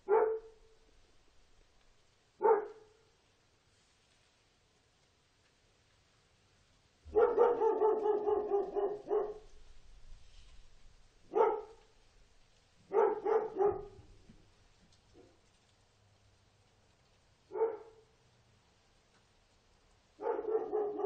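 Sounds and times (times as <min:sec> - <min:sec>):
dog barking: 0:00.0 - 0:00.8, 0:02.4 - 0:03.1, 0:07.1 - 0:09.6, 0:11.2 - 0:11.9, 0:12.8 - 0:14.2, 0:17.5 - 0:18.2, 0:20.2 - 0:21.0.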